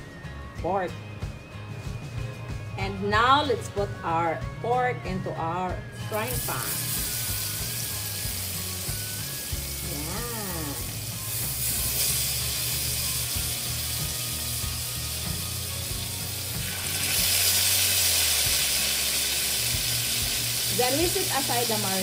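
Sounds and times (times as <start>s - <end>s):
pork sizzling in butter: 6.2s - 22.0s.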